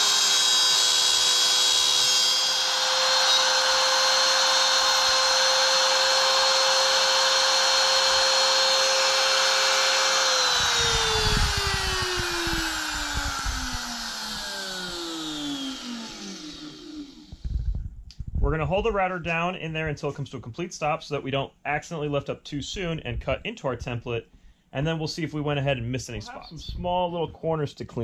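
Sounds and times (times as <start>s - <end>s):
router motor whining: 0.0s - 17.8s
low bumps: 10.6s - 15.6s, 16.4s - 19.0s.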